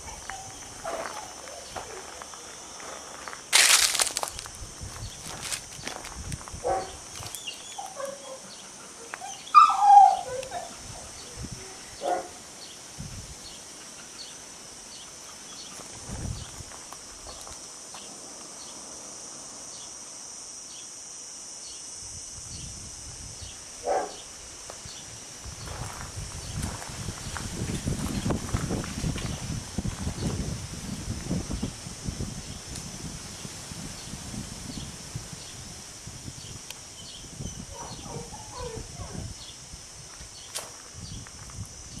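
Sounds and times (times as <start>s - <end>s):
dogs barking and yelping: 0.0s - 2.1s, 6.6s - 12.4s, 37.6s - 39.2s
steady high hiss: 0.0s - 42.0s.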